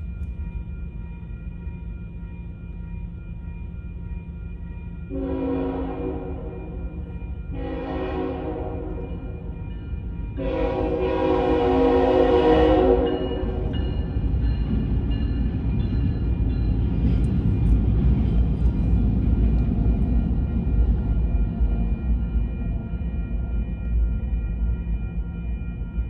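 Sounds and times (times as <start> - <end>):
train rumbling past: 0.0 - 26.0
locomotive horn blast: 5.1 - 6.6, 7.6 - 9.0, 10.4 - 13.7
high ringing crossing bells: 12.8 - 18.5.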